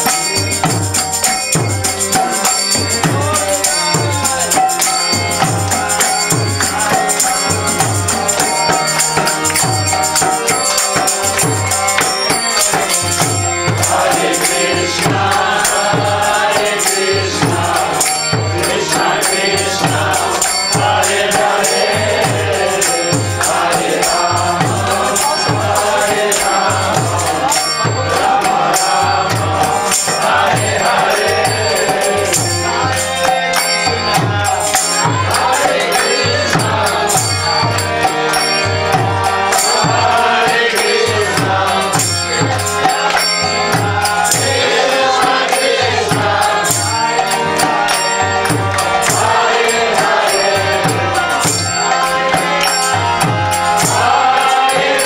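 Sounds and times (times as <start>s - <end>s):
hand percussion clicking: 0.0s - 55.0s
group of voices chanting: 10.4s - 38.2s, 39.1s - 55.0s.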